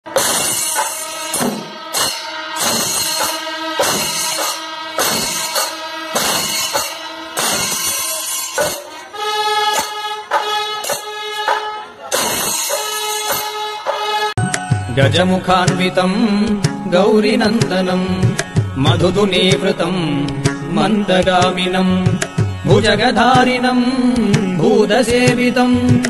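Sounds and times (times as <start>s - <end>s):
drums beaten with sticks: 0.1s - 9.1s, 9.8s - 20.6s, 21.2s - 23.6s, 24.2s - 26.0s
hand cymbals clashing: 0.1s - 9.1s, 9.7s - 16.1s
steady held notes: 0.2s - 25.8s.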